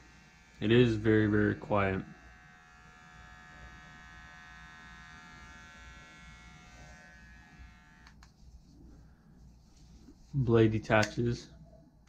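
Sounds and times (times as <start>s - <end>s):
body trimmer buzzing: 0.0s - 8.2s.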